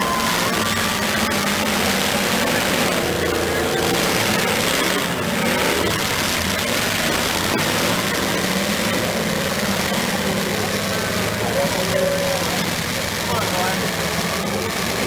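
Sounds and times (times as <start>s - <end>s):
car engines running together: 0.0s - 15.0s.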